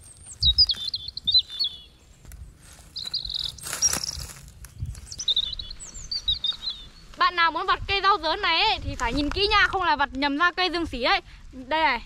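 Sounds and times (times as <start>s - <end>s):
small birds chirping: 0.0s - 7.6s.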